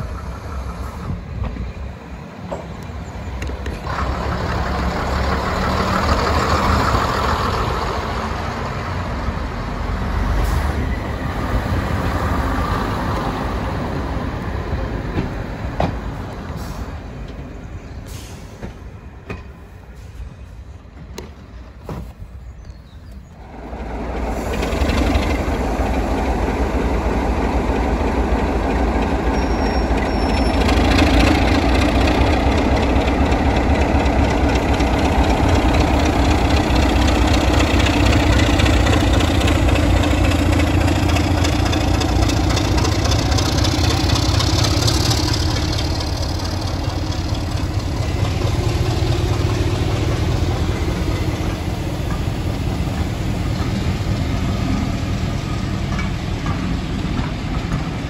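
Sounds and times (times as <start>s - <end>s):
diesel locomotive engine working hard: 0.0s - 58.0s
train coaches rolling past: 0.0s - 58.0s.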